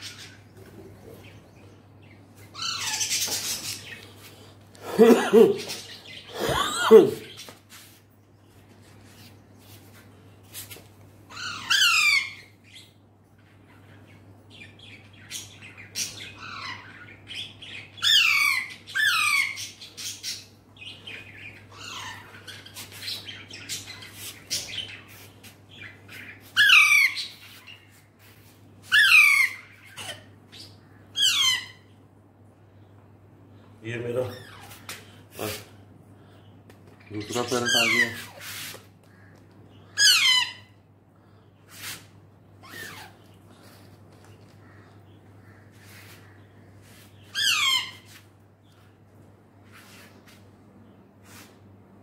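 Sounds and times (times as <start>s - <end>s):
parakeet squawking: 2.5s - 4.0s, 11.3s - 12.8s, 14.6s - 25.1s, 25.7s - 27.9s, 28.8s - 32.0s, 37.3s - 38.7s, 39.9s - 40.8s, 42.6s - 43.2s, 47.1s - 48.2s.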